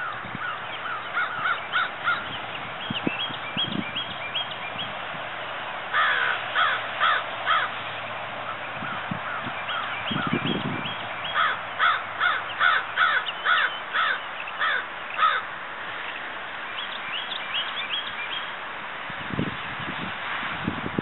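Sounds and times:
crow cawing: 0.0 - 2.2, 5.9 - 7.8, 11.3 - 15.5.

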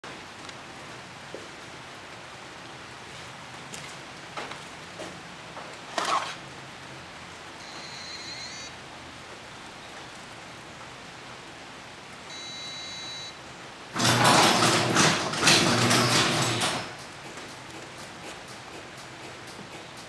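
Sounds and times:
electronic beeps: 7.6 - 8.7, 12.3 - 13.4
garage door rattling: 13.9 - 20.0.

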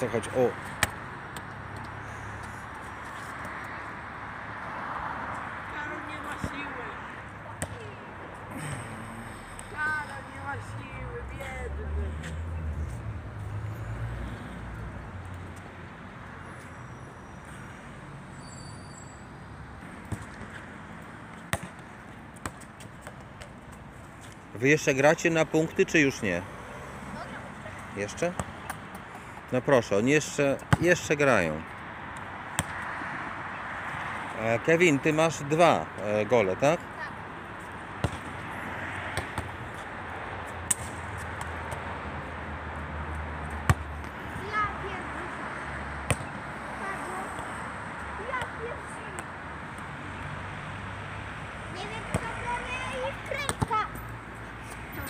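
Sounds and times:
road traffic: 0.0 - 55.0
football striking stone wall: 21.5 - 23.5, 32.5 - 32.8, 46.1 - 46.3.

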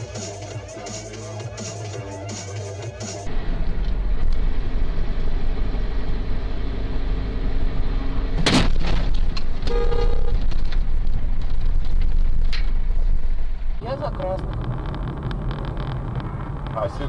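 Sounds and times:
car road and engine rumble: 0.0 - 17.0
loud car crash: 8.4 - 9.7.

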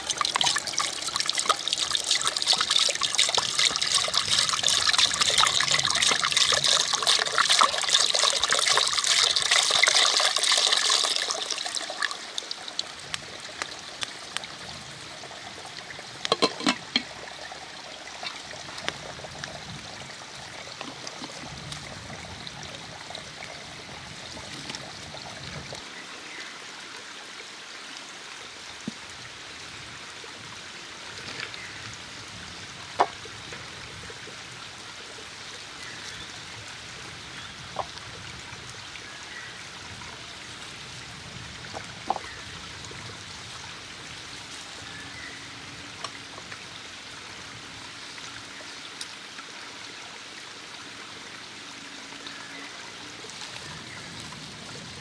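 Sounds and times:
water pouring into a pot: 0.0 - 14.5, 15.1 - 25.6
glass lid clinking on pot: 16.3 - 17.1.

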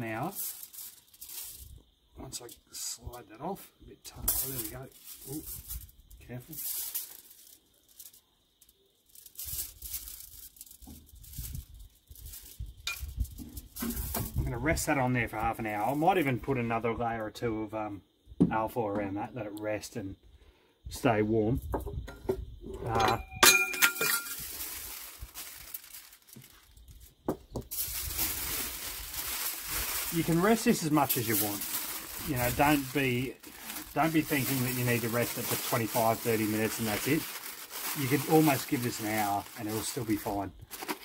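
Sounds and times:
foil rustling: 0.0 - 1.8, 4.3 - 14.4, 23.8 - 27.1, 27.7 - 41.0.

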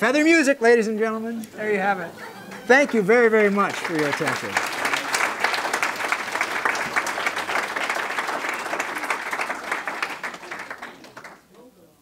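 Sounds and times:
audience applause: 2.0 - 11.5.

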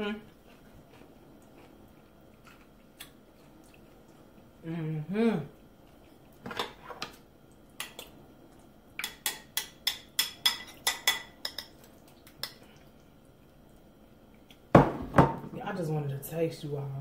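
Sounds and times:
spoon clinking on ceramic bowl: 9.0 - 11.8.

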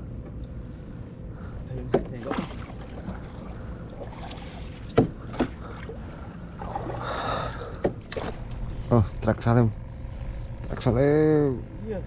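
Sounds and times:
low steady hum: 0.0 - 12.0
sharp knocks on boat: 1.8 - 2.6, 4.9 - 5.6.

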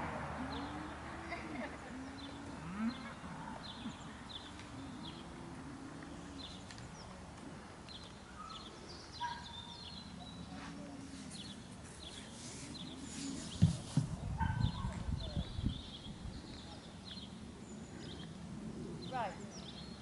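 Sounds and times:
low drawn-out bird calls: 2.0 - 7.2.

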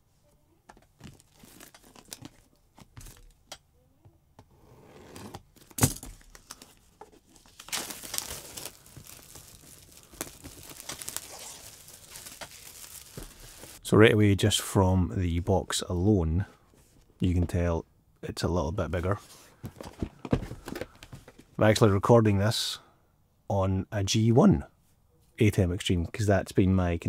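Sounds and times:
plastic crinkling by hand: 0.9 - 3.2, 6.2 - 13.8
plastic shrink-wrap tearing: 7.4 - 13.8.

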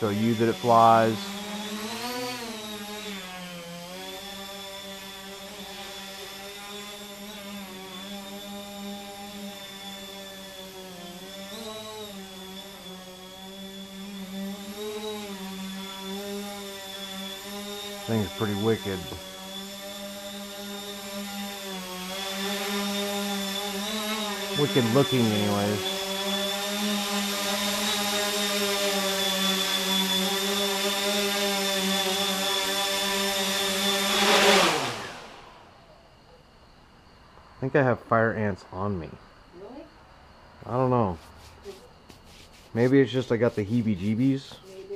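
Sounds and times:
drone motors buzzing hum: 0.0 - 36.7.

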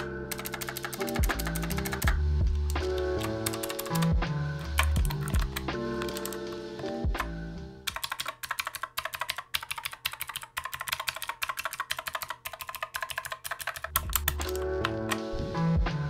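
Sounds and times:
mechanical keyboard key clacks: 0.0 - 2.2, 3.0 - 4.1, 4.8 - 6.4, 7.9 - 15.2
background music: 0.0 - 8.4, 13.6 - 16.0.

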